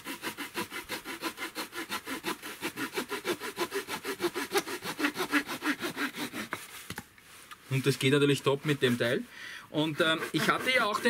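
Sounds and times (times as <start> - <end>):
small saw cutting a branch: 0.0 - 7.0, 9.8 - 11.0.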